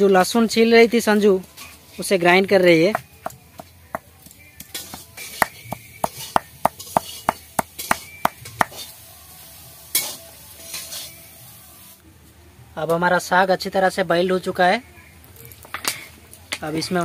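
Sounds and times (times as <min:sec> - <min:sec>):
stone knocking on grinding slab: 0:04.7 - 0:08.8
metal spatula stirring in wok: 0:04.7 - 0:09.0, 0:09.9 - 0:11.2
spatula scraping wok: 0:04.7 - 0:11.4.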